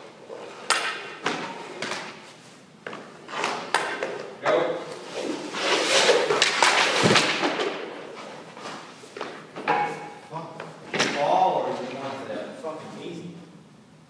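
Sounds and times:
hockey sticks and puck knocking: 0.5s - 2.2s, 2.8s - 4.4s, 6.0s - 8.0s
skates scraping on ice: 3.0s - 3.8s, 4.9s - 7.4s.

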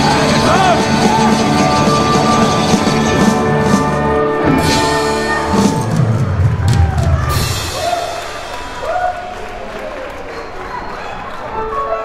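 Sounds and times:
rock band instrumental: 0.0s - 8.8s.

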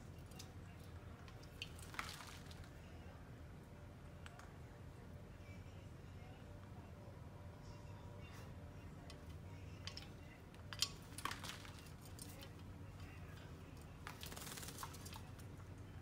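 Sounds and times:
wing flutters: 14.0s - 15.4s.

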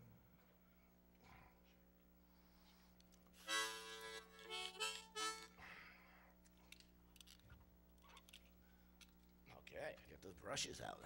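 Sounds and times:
harmonica chord and notes: 3.4s - 5.8s.

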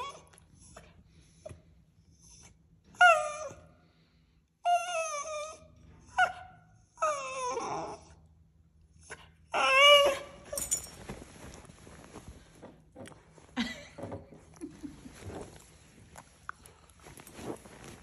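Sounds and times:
dog whining and whimpering: 0.0s - 3.8s, 4.6s - 10.9s.

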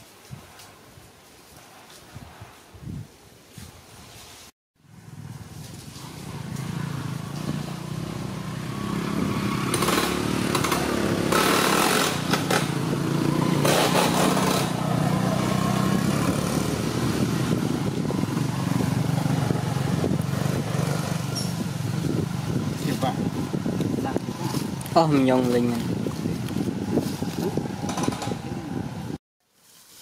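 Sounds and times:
small engine running: 6.0s - 21.6s.

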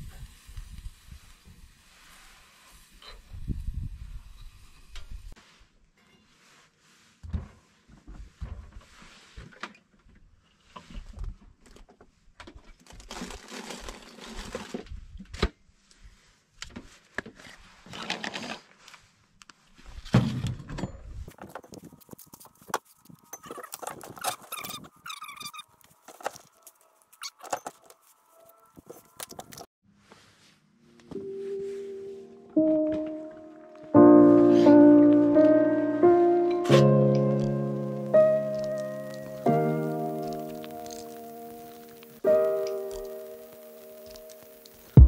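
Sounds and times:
rustling: 36.7s - 45.0s.

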